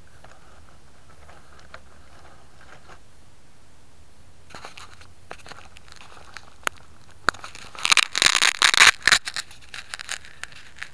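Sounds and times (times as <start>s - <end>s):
crackling and rubbing: 0.0s - 3.1s, 4.5s - 10.9s
fingers handling a camera: 4.5s - 10.9s.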